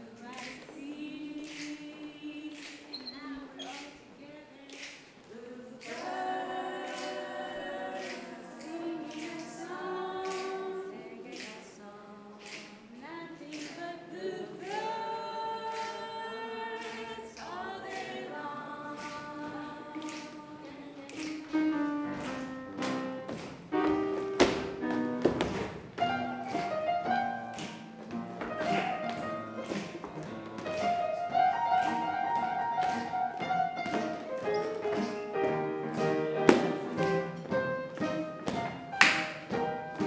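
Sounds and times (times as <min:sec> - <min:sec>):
voices singing in harmony: 0:00.0 - 0:21.5.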